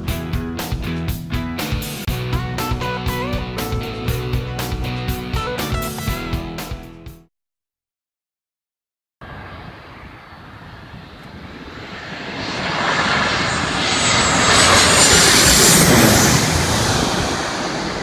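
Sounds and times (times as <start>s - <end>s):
jet airliner flying overhead: 9.2s - 18.0s
jet engine high whine: 9.2s - 18.0s.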